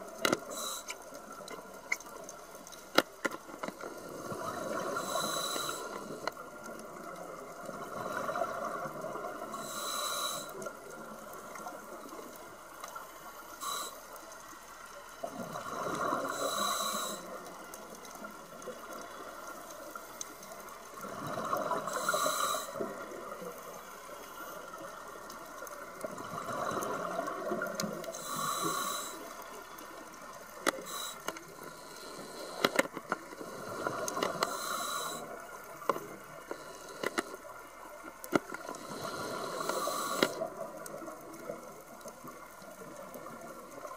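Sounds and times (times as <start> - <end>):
regulator inhale hiss: 0.2 - 1.7, 3.6 - 6.8, 9.4 - 10.8, 13.2 - 14.3, 15.6 - 17.6, 21.2 - 25.3, 26.6 - 29.8, 30.6 - 41.0.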